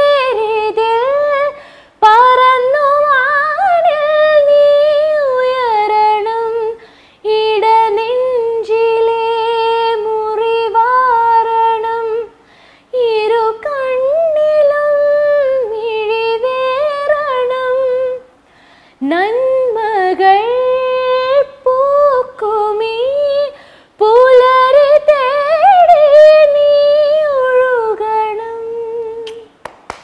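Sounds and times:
woman singing unaccompanied: 0.0 - 18.3, 19.0 - 29.6
woman breathing: 1.6 - 2.0, 6.8 - 7.2, 12.4 - 12.9, 18.4 - 19.0, 23.6 - 24.0.

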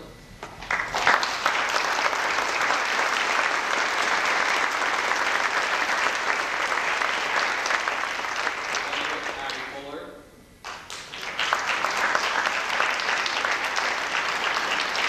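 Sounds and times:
crowd applauding: 0.6 - 9.8, 10.6 - 15.0.

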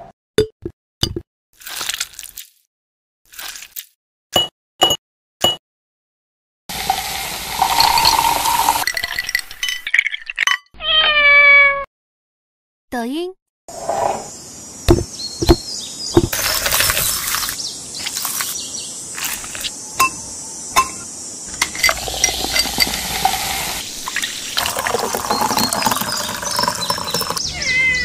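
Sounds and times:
liquid pouring over ice: 6.7 - 10.5, 16.4 - 18.5, 21.7 - 27.4
ice cubes clinking into glass: 6.8 - 10.7, 16.4 - 17.6, 21.6 - 27.4.

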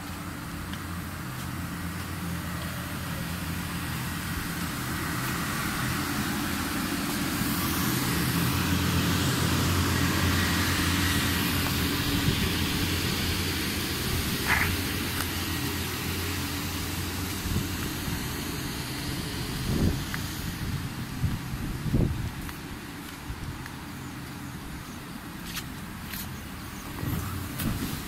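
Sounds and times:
electric air blower humming: 1.8 - 22.4.

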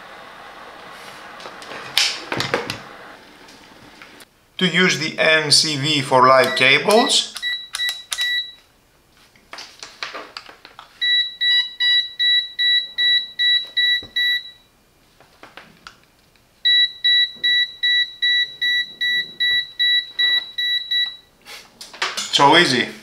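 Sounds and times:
rapid high-pitched beeping: 16.7 - 21.2.

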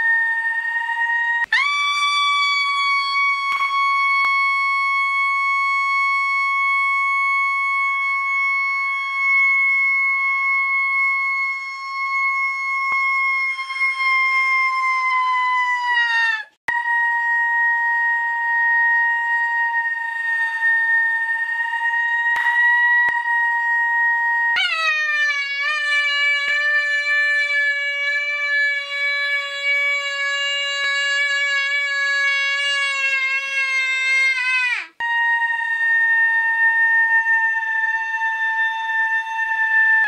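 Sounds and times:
high-pitched squealing tone: 24.5 - 35.6.

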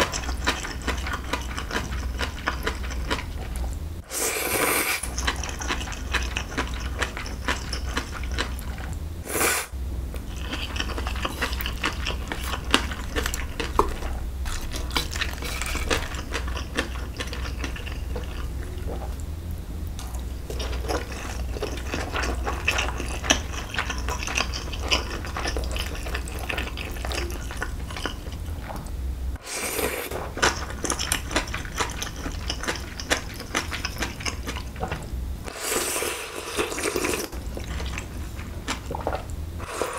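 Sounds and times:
steady low hum: 0.0 - 39.9
slurping noodles: 4.1 - 9.7, 29.4 - 39.9.

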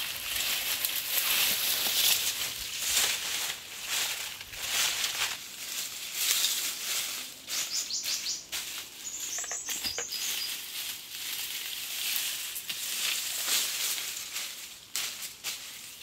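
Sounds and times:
rustling and handling noises: 0.0 - 7.8, 8.5 - 16.0
high bird chirps: 7.6 - 10.6.

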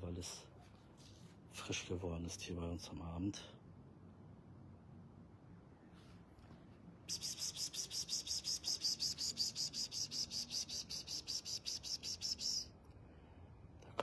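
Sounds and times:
cricket chirping: 7.1 - 12.6.

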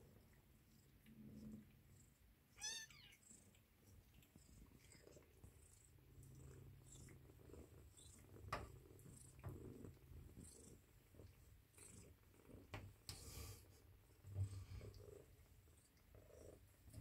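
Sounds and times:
cat purring: 0.0 - 2.5, 3.1 - 17.0.

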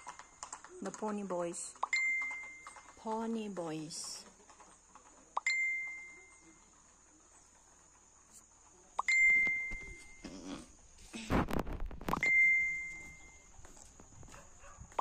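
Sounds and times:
small bell ringing: 5.4 - 6.6.

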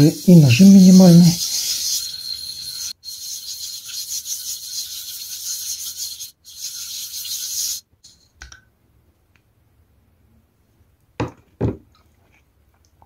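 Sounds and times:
sharpening stone gritty hiss: 0.0 - 8.4.

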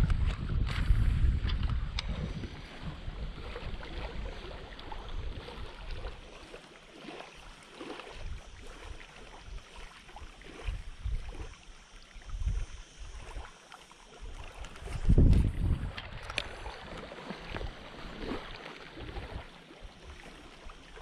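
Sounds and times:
wind buffeting microphone: 0.0 - 6.2, 8.1 - 9.8, 10.4 - 11.5, 12.2 - 13.4, 14.2 - 19.6
small waves lapping: 0.0 - 21.0.

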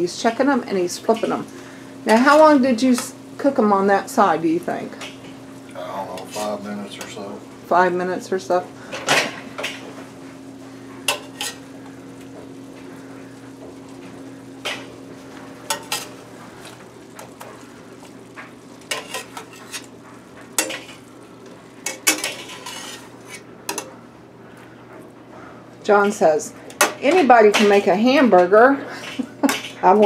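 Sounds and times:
patties frying: 0.0 - 30.0
metal spatula scraping a pan: 11.1 - 11.6, 18.9 - 19.9, 20.6 - 21.1, 21.8 - 23.8.

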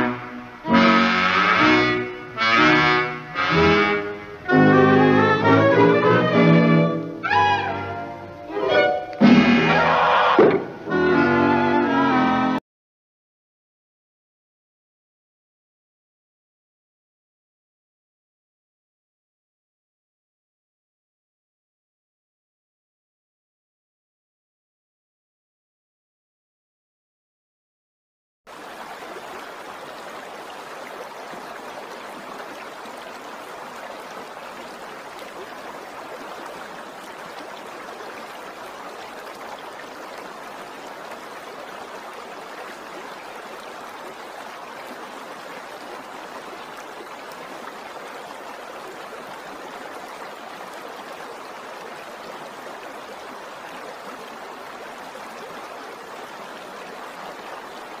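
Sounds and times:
stream rushing over rocks: 28.5 - 58.0.

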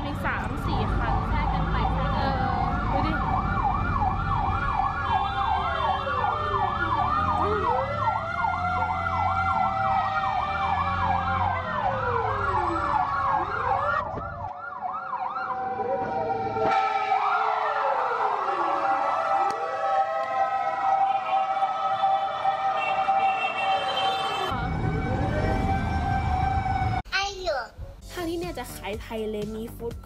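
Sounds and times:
fire truck sirens: 0.0 - 27.0.

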